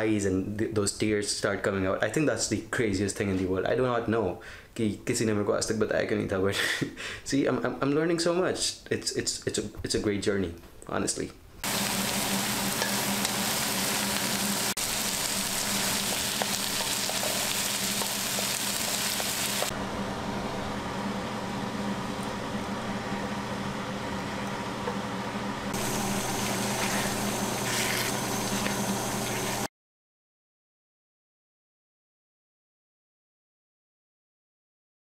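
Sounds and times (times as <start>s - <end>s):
onions sizzling in a wok: 11.6s - 19.7s, 25.8s - 29.7s
wooden spatula stirring: 15.9s - 19.7s, 25.8s - 29.7s.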